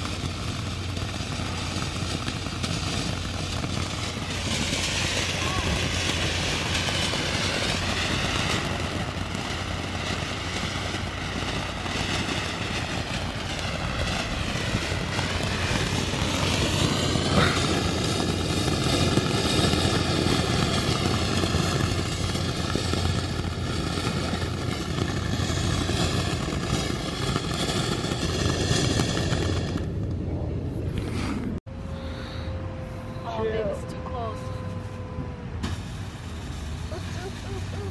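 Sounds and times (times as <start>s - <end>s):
fireworks hissing: 0.0s - 30.0s, 35.6s - 37.9s
sharp crack: 0.0s - 30.2s.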